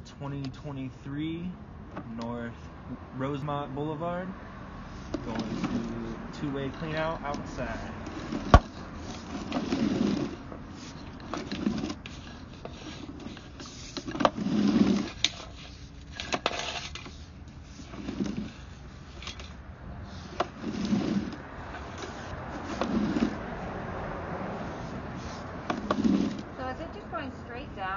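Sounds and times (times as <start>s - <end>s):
cable scraping in pipe: 4.9s - 26.8s.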